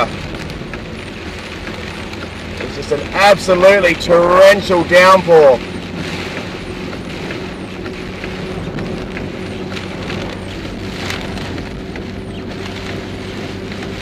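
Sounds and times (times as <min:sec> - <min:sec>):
car engine hum: 0:00.0 - 0:14.0
heavy rain on car roof: 0:00.0 - 0:14.0.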